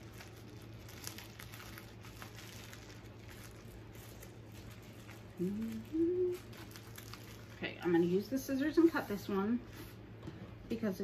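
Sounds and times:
rustling plastic wrapping: 0.0s - 10.0s
woman humming: 5.4s - 6.6s.

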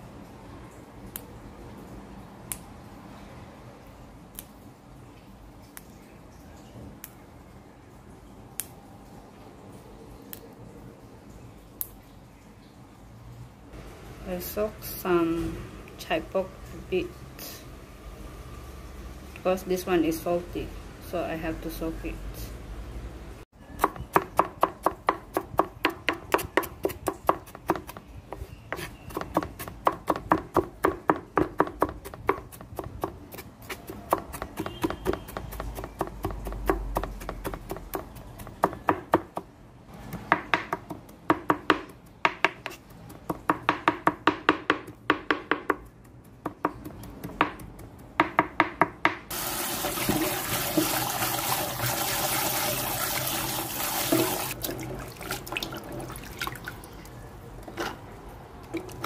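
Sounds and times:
knife chopping on cutting board: 23.8s - 39.4s, 40.0s - 49.2s
tap water running into bowl: 49.3s - 57.2s.

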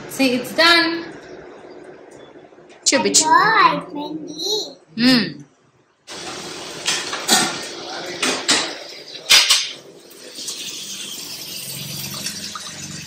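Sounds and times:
metal cookware clinks: 8.6s - 9.8s.

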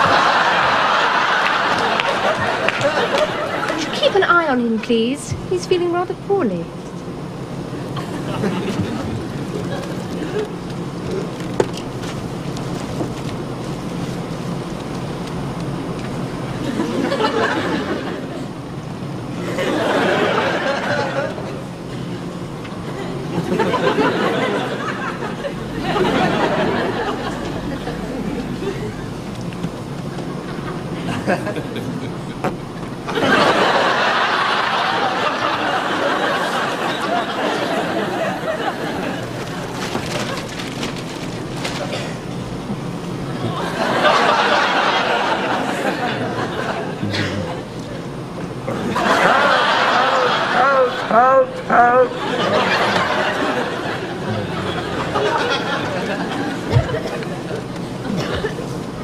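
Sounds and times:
studio audience laughing: 0.0s - 4.2s, 7.7s - 11.3s, 16.4s - 18.6s, 19.3s - 29.3s, 30.0s - 32.4s, 33.0s - 40.6s, 43.3s - 58.9s
airliner cabin hum: 0.0s - 59.0s.

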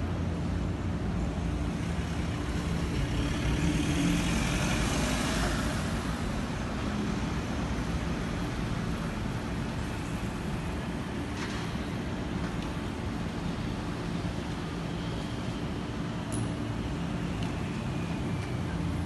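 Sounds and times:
road traffic noise: 0.0s - 19.0s.

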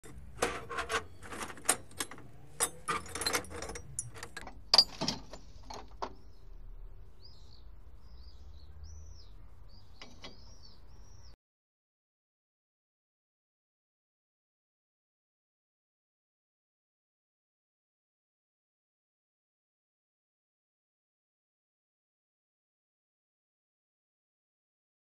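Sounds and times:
scrap steel clanking and scraping: 0.0s - 6.0s
birds chirping faintly: 0.9s - 11.4s.

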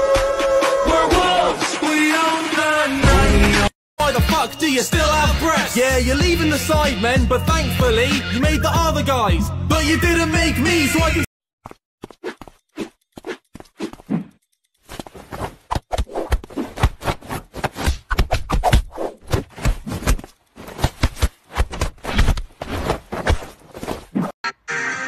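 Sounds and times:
scuffling on fabric sofa: 19.5s - 24.2s.

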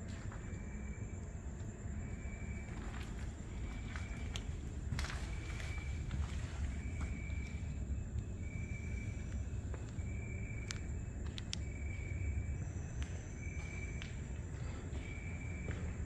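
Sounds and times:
insects trilling: 0.0s - 16.0s
steady high whine: 0.0s - 16.0s
faint clicks: 10.6s - 11.7s.

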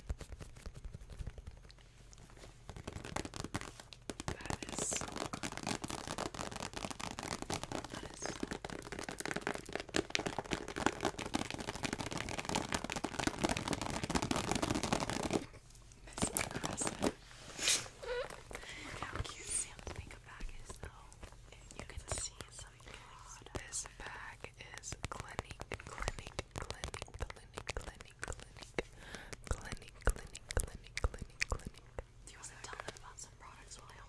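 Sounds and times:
plastic pouch crinkling: 2.6s - 17.2s.

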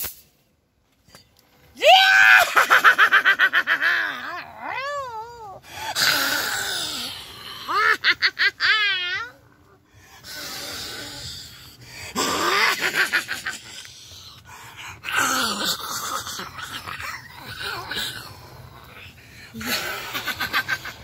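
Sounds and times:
shrill cackling laughter: 2.1s - 4.6s, 7.5s - 9.4s, 12.2s - 14.0s, 19.6s - 21.0s.

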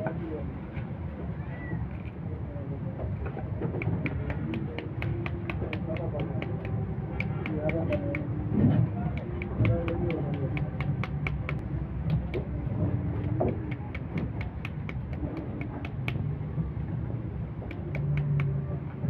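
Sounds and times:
low rumble of street noise: 0.0s - 19.0s
knife tapping fruit rind: 3.7s - 8.4s, 9.0s - 16.3s.

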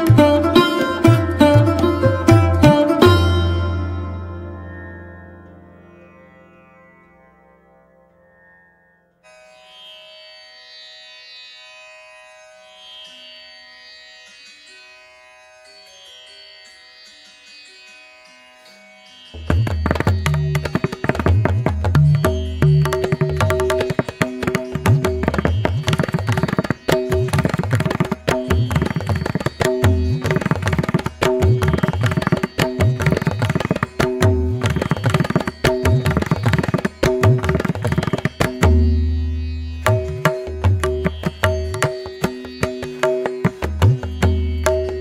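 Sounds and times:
fast tabla drumming: 0.0s - 3.8s, 19.4s - 45.0s.

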